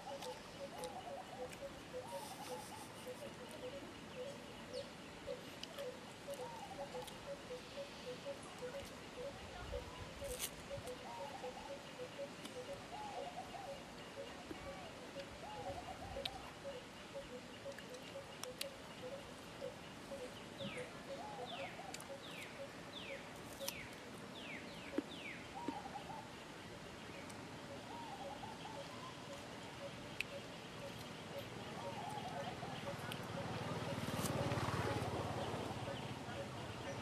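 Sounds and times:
wavering bird call: 0.0s - 4.4s.

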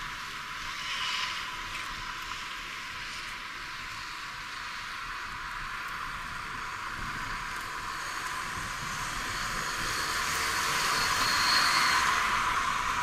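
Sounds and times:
vehicle passing on road: 4.7s - 13.0s.

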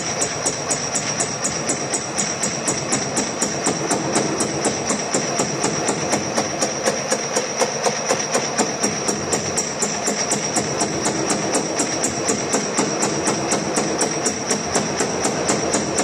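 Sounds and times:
machine running: 0.0s - 16.0s
metal shaping machine cutter clicking: 0.0s - 16.0s.

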